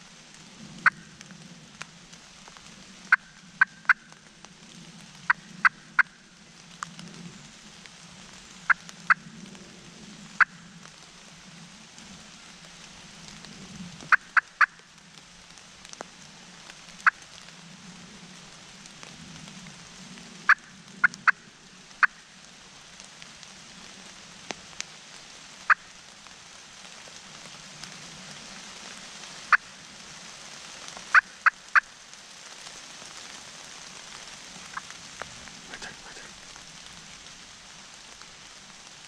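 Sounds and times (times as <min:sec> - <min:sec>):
wild turkeys clucking: 0:03.1 - 0:04.2, 0:14.1 - 0:14.8, 0:25.7 - 0:25.9, 0:31.1 - 0:31.9, 0:34.6 - 0:35.0, 0:35.6 - 0:36.5.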